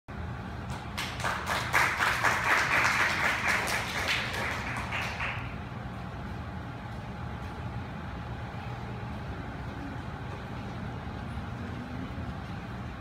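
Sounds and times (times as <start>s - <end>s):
steady low hum: 0.1s - 13.0s
audience applause: 0.7s - 5.6s.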